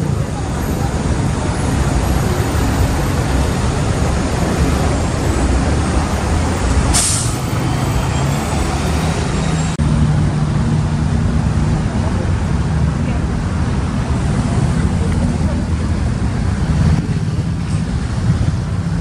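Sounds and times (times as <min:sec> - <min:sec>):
bus engine running: 0:00.0 - 0:19.0
street traffic: 0:00.0 - 0:19.0
air brakes hissing: 0:06.7 - 0:08.3.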